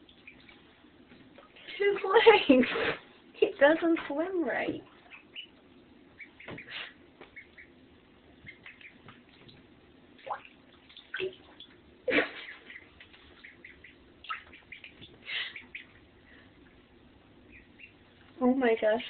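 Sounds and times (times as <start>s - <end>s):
ducklings peeping: 0.0s - 2.0s, 4.7s - 18.8s
small water splashes: 10.2s - 16.0s.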